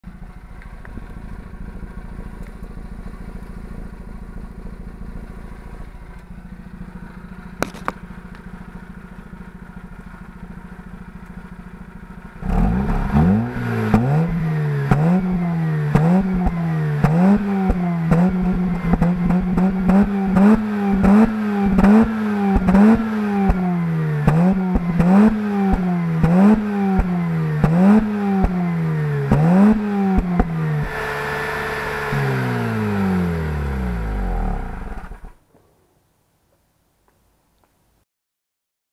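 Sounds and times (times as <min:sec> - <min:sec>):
rotary engine idling and revving: 0:00.0 - 0:35.4
exhaust pops and crackles: 0:00.1 - 0:04.8, 0:05.7 - 0:13.2, 0:13.9 - 0:31.0.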